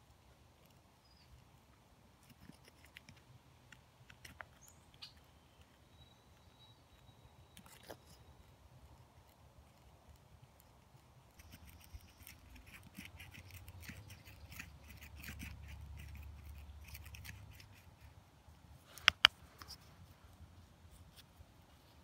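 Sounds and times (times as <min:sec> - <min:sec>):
knife scraping dry wood: 0:11.3 - 0:18.1.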